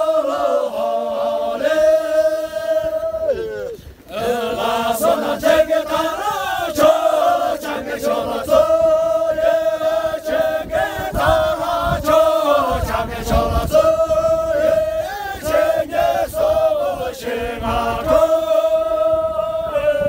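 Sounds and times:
men singing in unison: 0:00.0 - 0:20.0.

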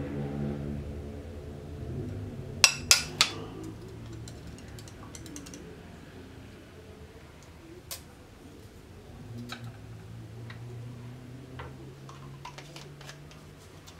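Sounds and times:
plastic tube clicking on glassware: 0:02.6 - 0:05.6.

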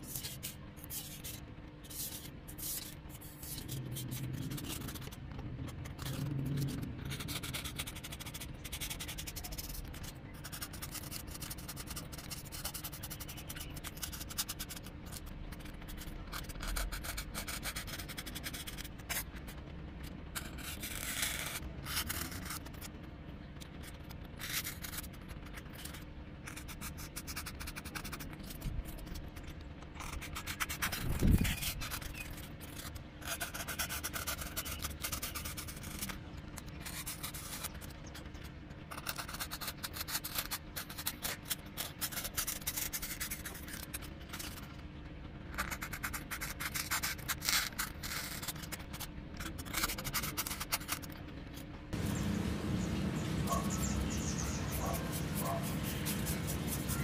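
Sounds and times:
knife cutting foam sheet: 0:20.4 - 0:22.9, 0:54.7 - 0:57.0.

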